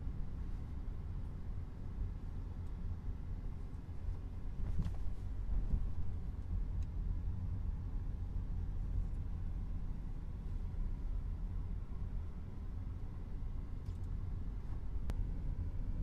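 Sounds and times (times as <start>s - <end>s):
car engine and road noise: 0.0s - 16.0s.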